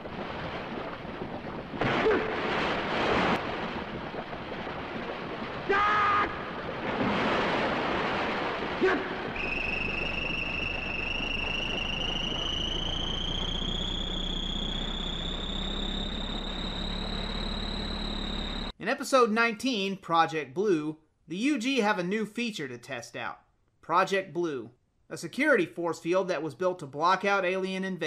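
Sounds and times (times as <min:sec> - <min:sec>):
burst of noise: 0:00.0 - 0:18.7
thin electronic tone rising: 0:09.4 - 0:18.7.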